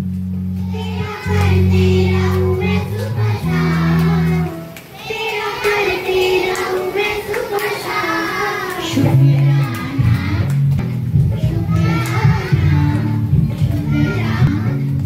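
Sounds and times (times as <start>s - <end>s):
low held instrumental notes: 0.0s - 5.1s, 5.7s - 15.0s
high voice singing: 0.7s - 10.6s.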